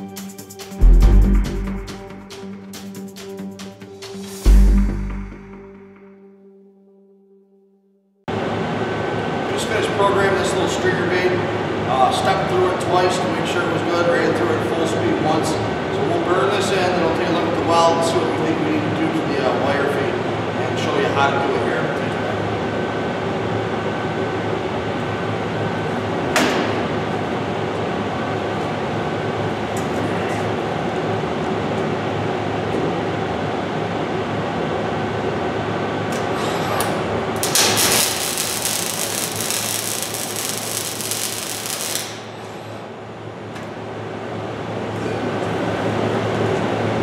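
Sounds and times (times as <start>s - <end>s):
welding cell humming: 36.1s - 44.6s
welding arc crackling hiss: 37.4s - 42.8s.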